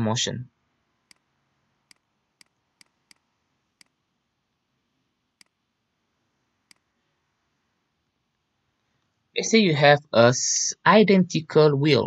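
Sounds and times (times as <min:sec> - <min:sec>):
stylus tapping on tablet screen: 0:01.0 - 0:04.0, 0:05.4 - 0:05.6.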